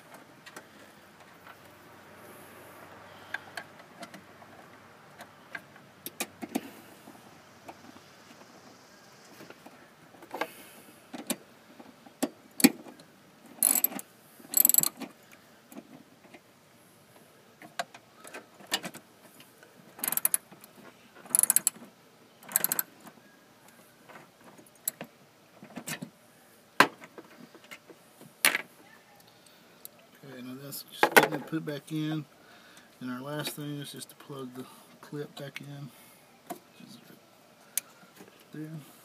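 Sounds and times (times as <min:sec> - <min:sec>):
ratchet wrench clicking: 0:13.6 - 0:15.0, 0:20.0 - 0:20.4, 0:21.3 - 0:21.8, 0:22.4 - 0:22.9.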